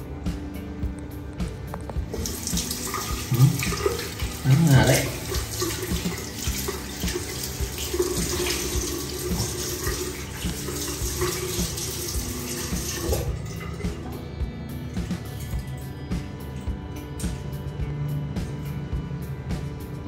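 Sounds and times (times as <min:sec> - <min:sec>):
tap water running into sink: 0:02.1 - 0:14.1.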